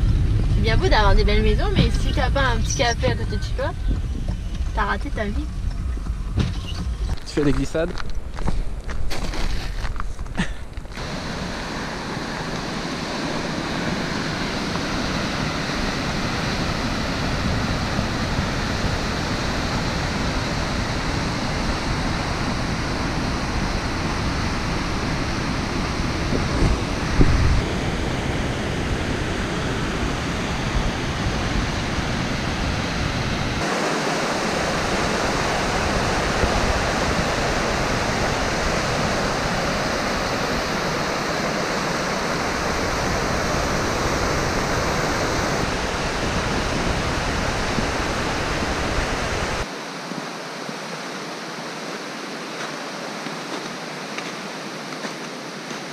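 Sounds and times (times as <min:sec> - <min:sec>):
low thump: 0:05.5 - 0:07.3
river rapids rushing: 0:11.0 - 0:55.9.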